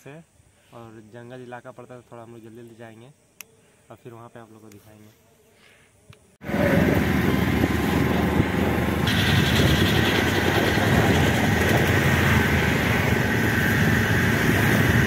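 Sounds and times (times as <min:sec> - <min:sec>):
high whine: 0:06.4 - 0:15.0
road noise: 0:06.4 - 0:15.0
vehicle engine running: 0:06.4 - 0:15.0.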